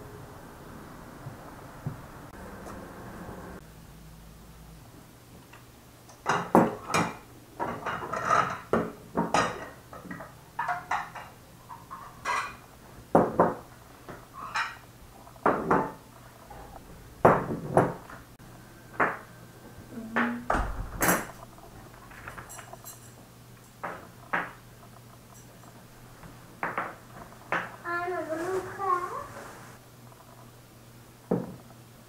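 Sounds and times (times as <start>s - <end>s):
plates and forks clattering: 6.3s - 13.6s, 14.4s - 16.0s, 22.1s - 24.6s.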